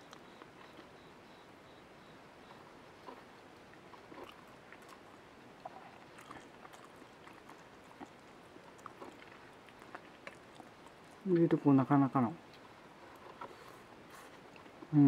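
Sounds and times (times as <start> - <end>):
person chewing: 3.0 - 11.5, 12.4 - 15.0.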